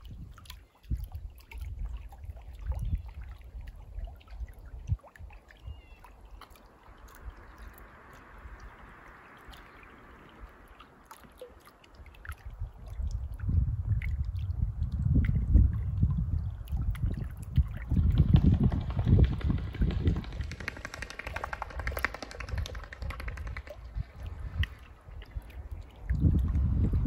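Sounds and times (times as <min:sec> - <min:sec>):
steady rush of water: 0:00.0 - 0:14.4
water trickling and lapping: 0:00.0 - 0:27.0
gusty low rumble: 0:12.6 - 0:27.0.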